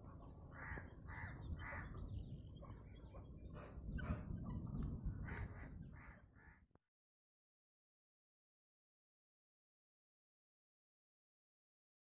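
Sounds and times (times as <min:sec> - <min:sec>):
small birds chirping: 0:00.0 - 0:06.6
crows cawing: 0:05.2 - 0:06.6.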